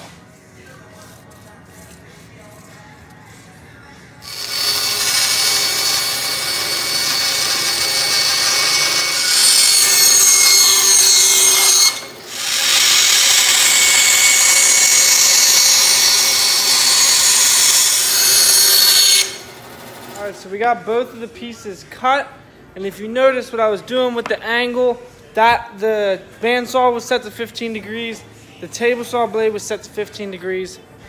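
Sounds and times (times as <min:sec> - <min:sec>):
bandsaw cutting wood: 0:04.2 - 0:20.2.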